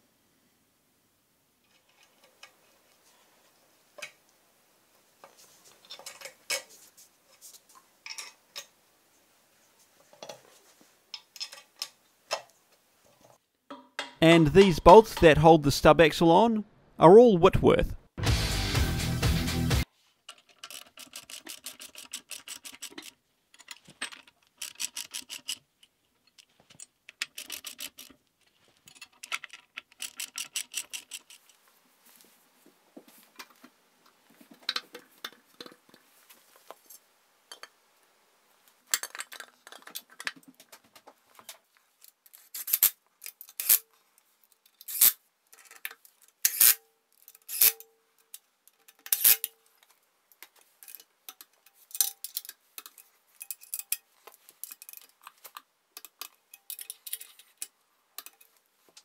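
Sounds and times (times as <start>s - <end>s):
metal parts handled: 44.6s - 49.6s, 50.4s - 58.6s
socket ratchet clicking: 47.4s - 47.8s.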